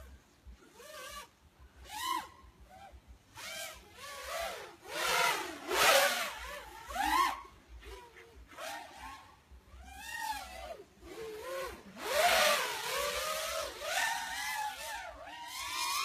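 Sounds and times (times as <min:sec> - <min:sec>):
quadcopter motors whining: 0:00.7 - 0:16.0.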